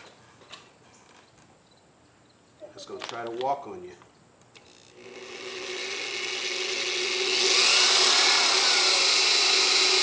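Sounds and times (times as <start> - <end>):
electric drill motor hum: 4.5 - 10.0
drill bit cutting metal: 4.7 - 10.0.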